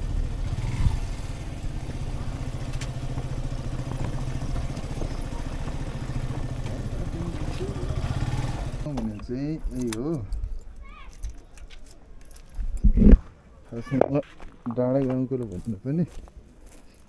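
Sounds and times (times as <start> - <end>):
motorcycle engine running: 0.0 - 9.2.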